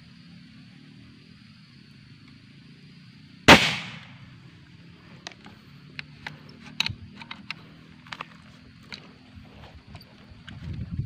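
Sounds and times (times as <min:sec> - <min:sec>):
gunshot echo: 0:03.5 - 0:04.2.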